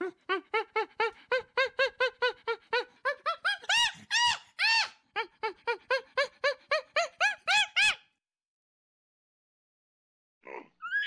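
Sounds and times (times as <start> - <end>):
chimpanzee hooting: 0.0 - 5.0.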